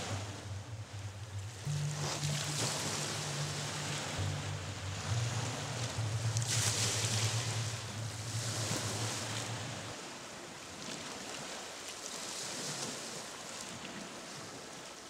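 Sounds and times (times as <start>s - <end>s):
low steady hum: 0.0s - 11.2s
waves breaking over rocks: 0.0s - 15.0s.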